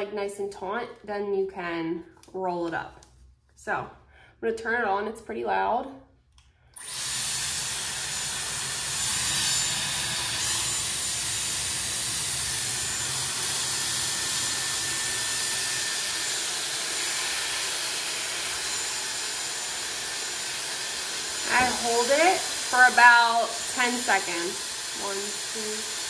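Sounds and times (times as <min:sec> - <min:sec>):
hair styler rush of air: 0:06.8 - 0:26.0.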